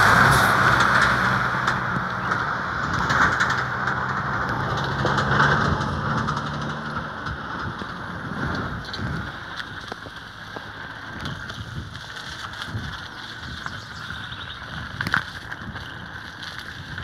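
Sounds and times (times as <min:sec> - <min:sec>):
wind on microphone: 0:00.0 - 0:10.1, 0:11.1 - 0:17.0
mountain bike rolling: 0:00.0 - 0:17.0.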